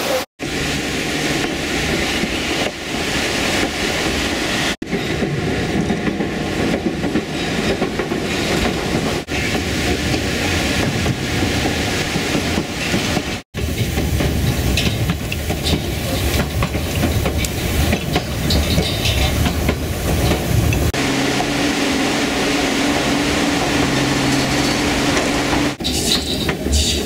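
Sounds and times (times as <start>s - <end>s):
train rumble and wheel clatter: 0.0s - 27.0s.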